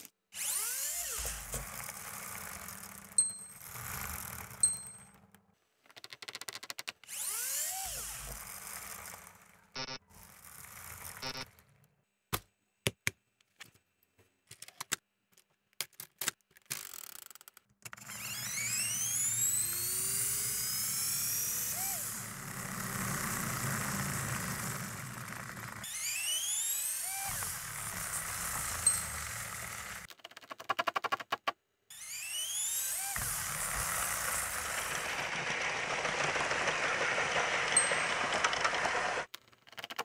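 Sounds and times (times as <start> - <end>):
flywheels whirring and whining: 0.4 - 5.4, 7.0 - 11.9, 17.9 - 30.1, 31.9 - 39.3.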